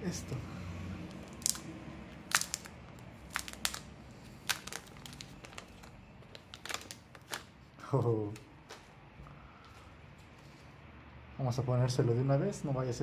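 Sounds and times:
plastic film peeling and crinkling: 1.1s - 9.0s.

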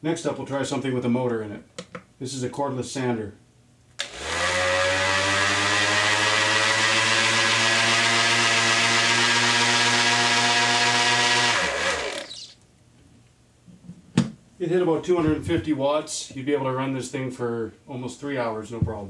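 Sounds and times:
electric sander whining: 4.0s - 12.6s.

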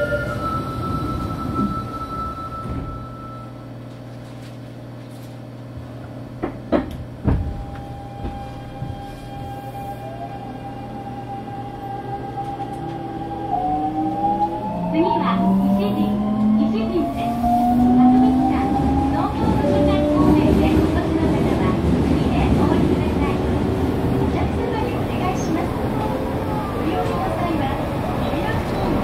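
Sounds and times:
train doors clunking shut: 0.0s - 3.2s, 6.4s - 9.6s.

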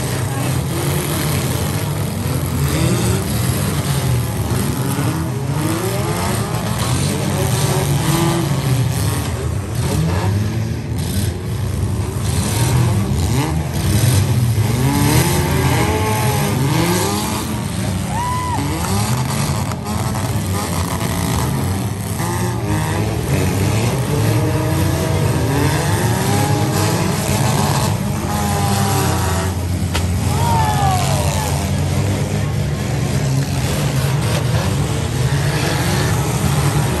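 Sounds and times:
car engines revving: 0.0s - 37.0s.

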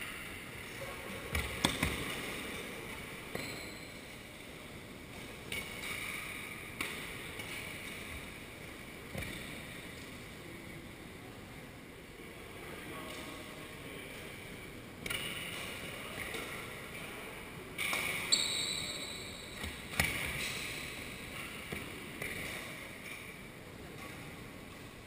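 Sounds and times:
sports hall noise: 0.0s - 25.0s
rackets hitting shuttlecock: 1.3s - 2.3s, 15.0s - 16.5s, 21.7s - 23.3s.

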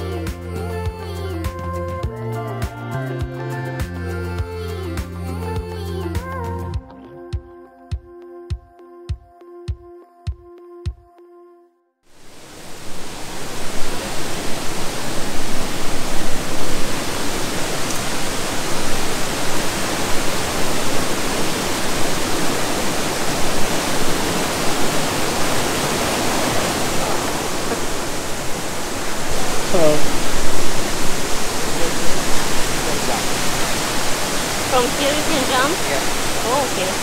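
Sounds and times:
waterfall rushing: 12.2s - 37.0s.

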